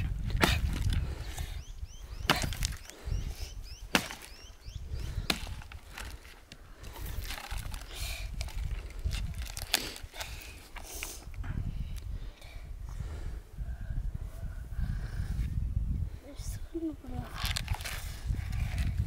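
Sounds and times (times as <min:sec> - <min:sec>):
axe chopping branch: 0:00.0 - 0:01.0, 0:02.2 - 0:02.9, 0:03.8 - 0:04.5, 0:05.1 - 0:06.2.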